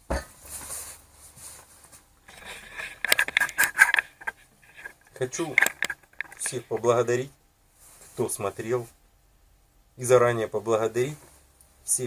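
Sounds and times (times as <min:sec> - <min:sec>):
soft rustling: 0:00.5 - 0:07.0
camera handling clicks and scrapes: 0:02.3 - 0:06.7.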